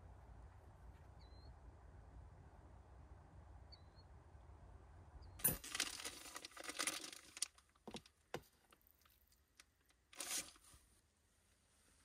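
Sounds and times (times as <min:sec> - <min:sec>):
plastic container crinkling: 0:05.5 - 0:07.8.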